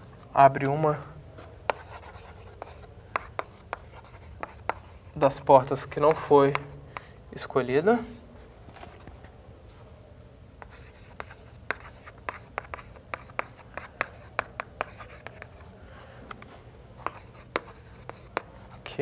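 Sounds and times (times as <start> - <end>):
chalk tapping and scratching on board: 1.4 - 5.4, 6.1 - 7.1, 10.6 - 15.7, 16.3 - 19.0.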